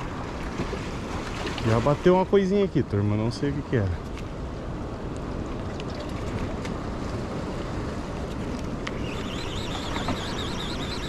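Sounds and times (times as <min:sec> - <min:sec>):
fast-running water: 0:00.0 - 0:02.5
faint wavering high whine: 0:08.8 - 0:11.0.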